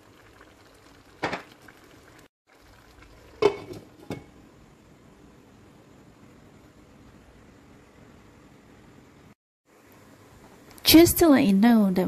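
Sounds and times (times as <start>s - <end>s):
faint simmer: 0.0s - 12.0s
cookware rattle: 3.4s - 4.3s
glass lid clanking on wok: 3.4s - 4.4s.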